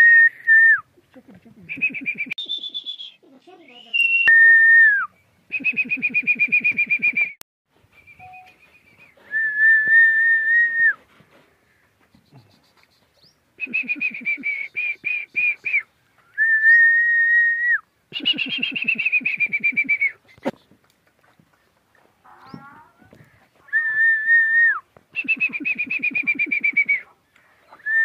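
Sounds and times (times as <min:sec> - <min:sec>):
person whistling: 0:00.0 - 0:00.8, 0:01.8 - 0:03.2, 0:03.8 - 0:07.4, 0:09.2 - 0:11.0, 0:13.6 - 0:15.8, 0:16.4 - 0:20.2, 0:23.7 - 0:27.0.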